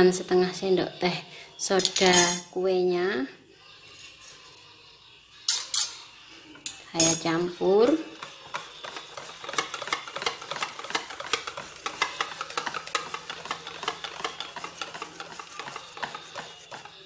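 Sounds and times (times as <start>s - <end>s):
whisk clinking in metal bowl: 6.7s - 17.0s.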